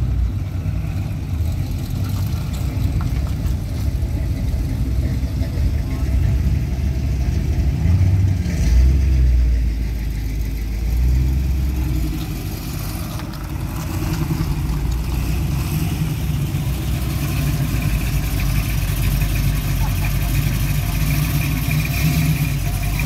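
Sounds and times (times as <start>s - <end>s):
car engine rumble: 0.0s - 23.0s.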